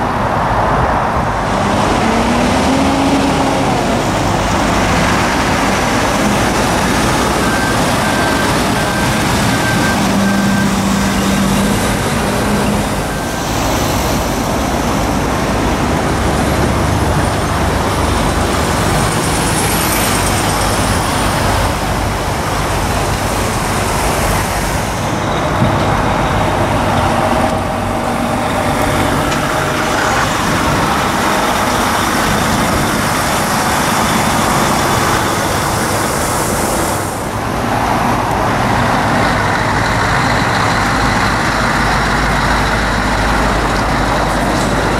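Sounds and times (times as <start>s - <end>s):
diesel lorries manoeuvring: 0.0s - 44.9s
reversing alarm beeping: 1.7s - 37.3s.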